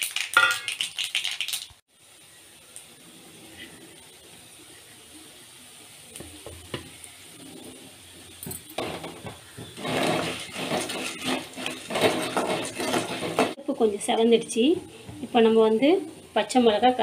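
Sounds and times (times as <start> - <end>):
seeds sizzling and crackling in oil: 0.0 - 17.0
stirring against metal pan: 6.7 - 13.6.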